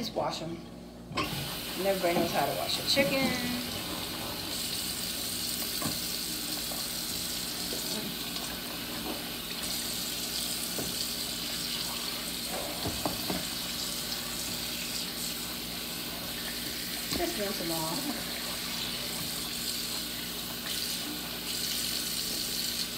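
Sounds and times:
tap running into sink: 5.6s - 6.8s, 10.6s - 11.2s, 12.4s - 13.6s, 16.4s - 17.6s.

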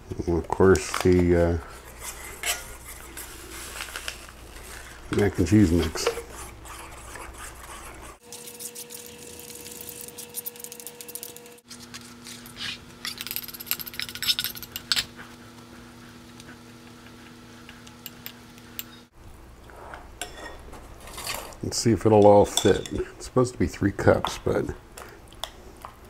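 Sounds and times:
metal spoon scraping metal bowl: 1.7s - 3.3s.

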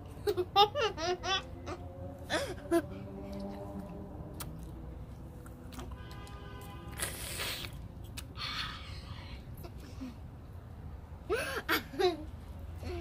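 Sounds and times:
wet gum chewing: 3.3s - 6.2s.

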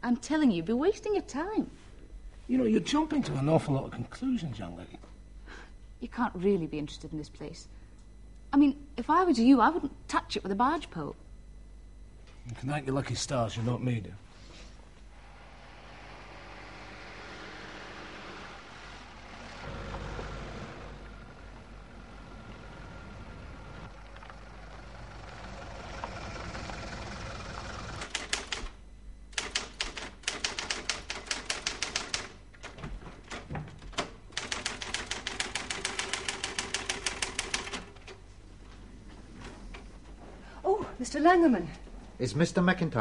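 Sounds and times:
car driving along road: 15.5s - 28.0s
typewriter keystrokes clattering: 28.0s - 28.8s, 29.4s - 38.2s.

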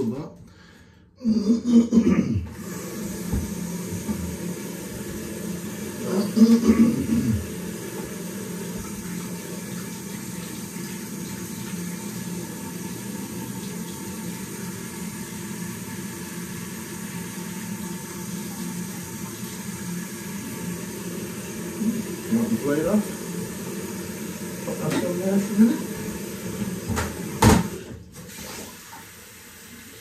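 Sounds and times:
tap running into a sink: 2.9s - 5.5s, 7.2s - 12.2s, 24.1s - 29.1s.

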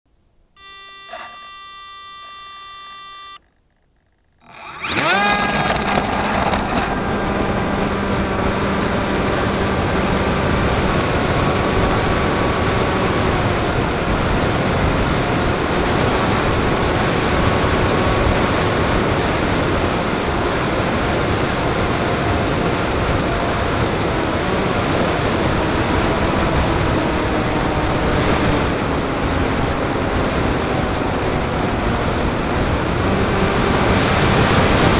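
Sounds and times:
electronic beep: 0.6s - 3.5s, 4.4s - 5.2s
electric motor and propeller whine: 4.4s - 34.9s
wind rush: 6.1s - 34.9s.

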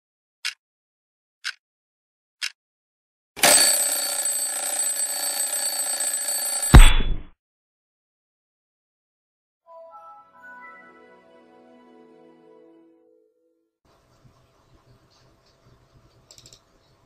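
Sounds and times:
alarm clock bell ringing: 3.4s - 6.9s
loud thump: 6.8s - 7.3s.

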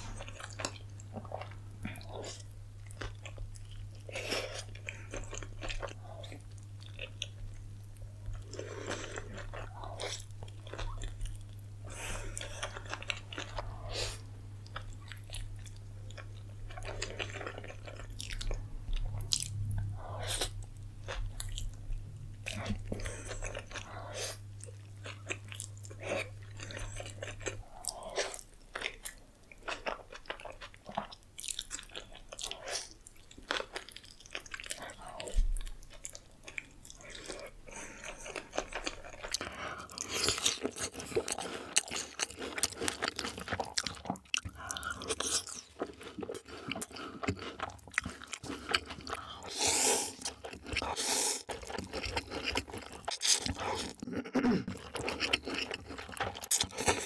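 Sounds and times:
chewing with wet mouth clicks: 14.6s - 49.5s, 50.2s - 57.0s
tortilla crunching: 50.2s - 57.0s.

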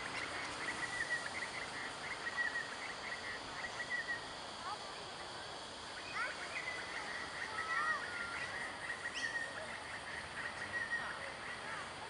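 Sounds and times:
outdoor background noise: 0.0s - 12.0s
birds chirping and whistling: 0.6s - 4.2s, 6.0s - 11.6s.

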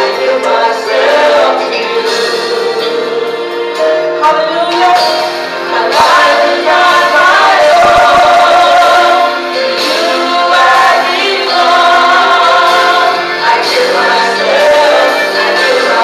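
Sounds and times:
women and girl singing gospel: 0.0s - 3.1s, 4.3s - 16.0s.

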